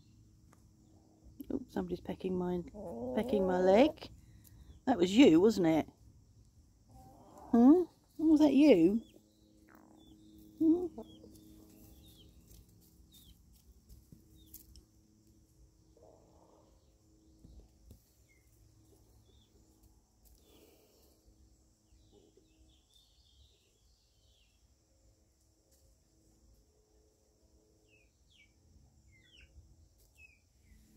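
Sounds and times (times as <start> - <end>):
hens clucking: 1.8 - 4.1, 6.9 - 9.1, 9.7 - 11.8
faint high bird chirps: 8.8 - 12.4, 27.8 - 30.9.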